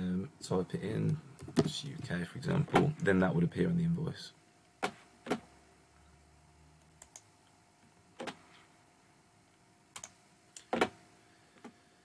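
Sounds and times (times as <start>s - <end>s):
computer mouse clicking: 7.0s - 7.3s, 9.9s - 10.8s.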